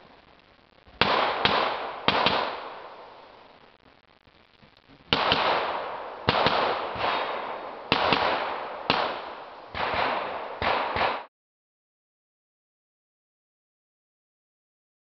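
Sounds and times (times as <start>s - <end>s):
pistol shots with echo: 1.0s - 3.2s, 5.1s - 11.3s.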